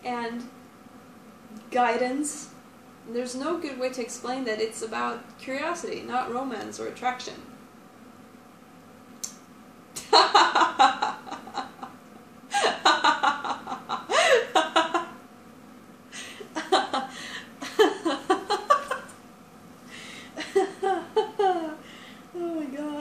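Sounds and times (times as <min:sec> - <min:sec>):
woman laughing: 0:10.0 - 0:15.2, 0:16.2 - 0:19.2, 0:20.0 - 0:21.9.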